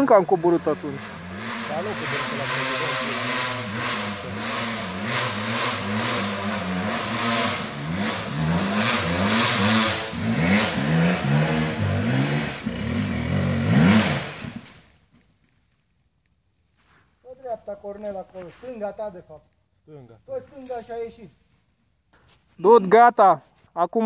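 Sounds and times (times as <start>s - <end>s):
dirt bike engine revving: 0.0s - 14.8s.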